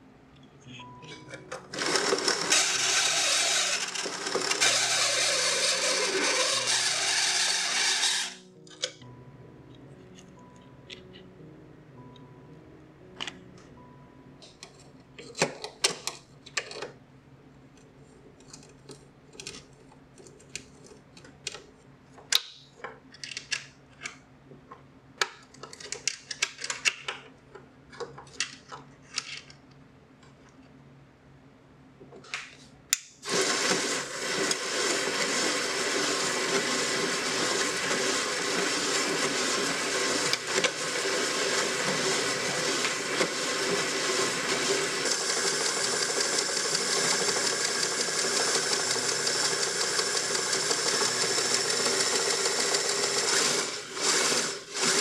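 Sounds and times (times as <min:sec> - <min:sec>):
band saw running: 0:01.7 - 0:08.4, 0:33.2 - 0:55.0.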